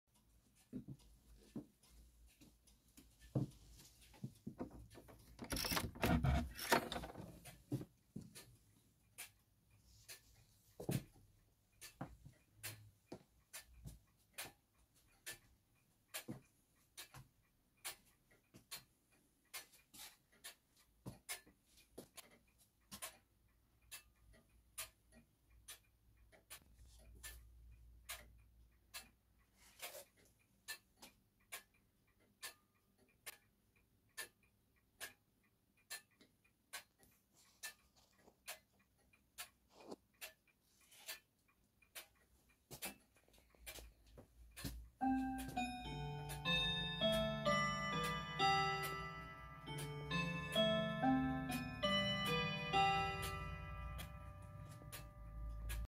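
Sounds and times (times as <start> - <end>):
clock ticking: 0.1 - 55.9.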